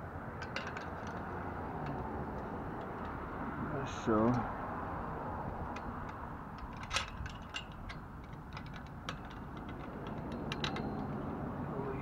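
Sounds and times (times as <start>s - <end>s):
small metal clicks and ticks: 0.4s - 3.2s, 3.9s - 4.5s, 5.6s - 11.3s.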